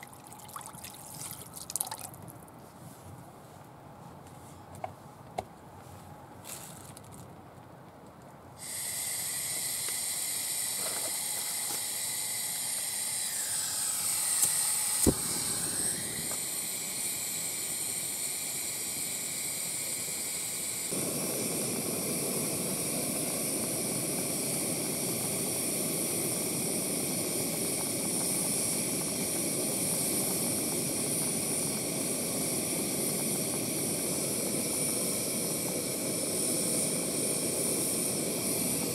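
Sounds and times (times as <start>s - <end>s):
gas stove burner hissing: 8.5s - 38.9s.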